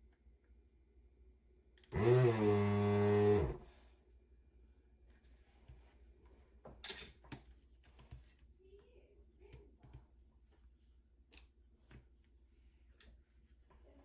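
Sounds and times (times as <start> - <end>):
desoldering vacuum pump hum: 1.6 - 3.9.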